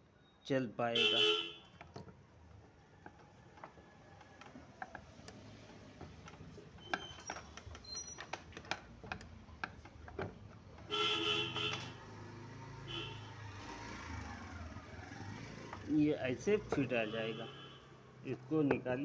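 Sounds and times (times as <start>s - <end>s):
loud horn: 1.0s - 1.6s, 10.9s - 12.0s, 12.9s - 13.4s
light metal clicks and taps: 1.7s - 10.9s.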